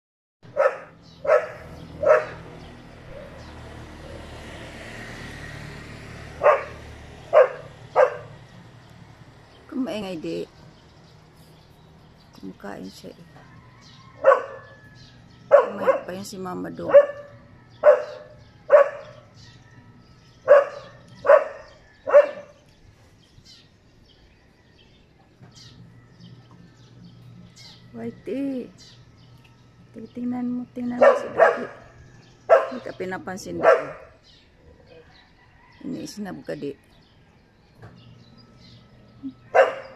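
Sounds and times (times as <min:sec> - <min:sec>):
dog barking: 0:00.5 - 0:02.5, 0:06.4 - 0:08.4, 0:14.2 - 0:14.8, 0:15.5 - 0:16.2, 0:16.8 - 0:19.3, 0:20.4 - 0:22.6, 0:31.0 - 0:34.2, 0:39.5 - 0:39.9.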